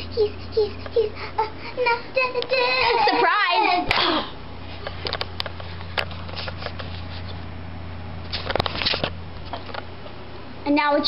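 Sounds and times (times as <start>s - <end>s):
low hum: 0.0s - 10.7s
camera handling knocks and rustles: 8.4s - 9.9s.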